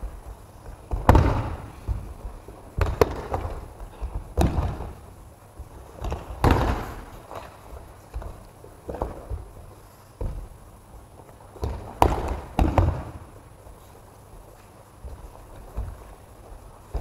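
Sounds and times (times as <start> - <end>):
bodies slapping onto mats: 0.6 - 9.6, 11.5 - 13.4.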